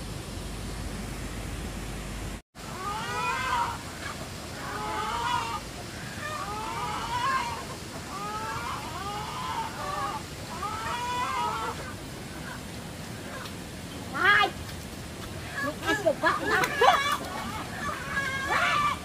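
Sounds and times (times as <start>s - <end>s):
chickens calling: 2.6s - 13.5s, 15.4s - 19.0s.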